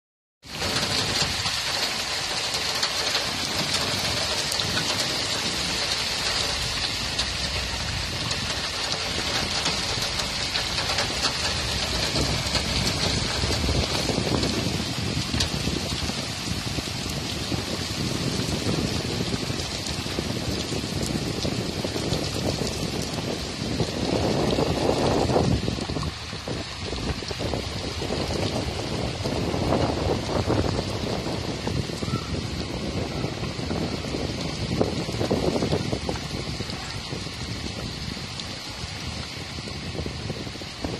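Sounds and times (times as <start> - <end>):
heavy rain pouring: 0.4 - 40.9
low rumble: 0.5 - 32.2.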